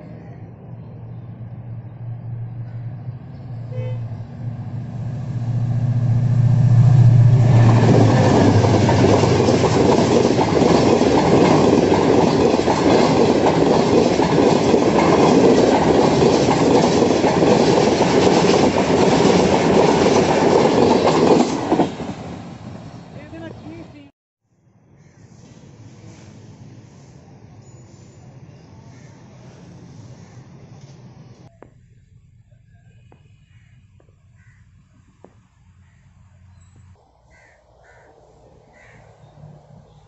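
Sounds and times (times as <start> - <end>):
diesel locomotive engine hum: 0.0 - 24.1, 25.3 - 40.0
train wheels clattering on rails: 7.3 - 22.4.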